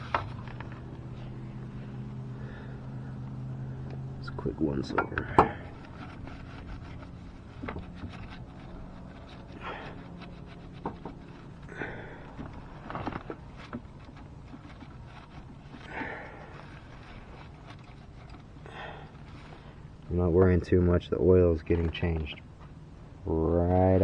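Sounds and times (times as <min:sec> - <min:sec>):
low steady hum: 0:00.0 - 0:24.0
light clicks and knocks: 0:04.8 - 0:05.7
paper towel wiping metal: 0:05.8 - 0:11.6.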